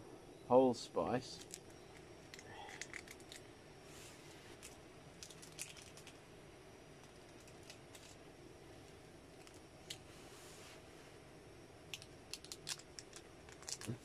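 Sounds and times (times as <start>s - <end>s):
spice sachet rustling: 4.6s - 6.2s, 12.0s - 14.0s.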